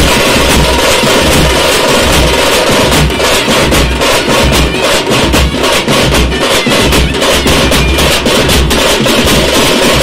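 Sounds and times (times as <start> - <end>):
deep bass drum beats: 0.0 - 10.0
side drums rapid strokes: 0.0 - 10.0.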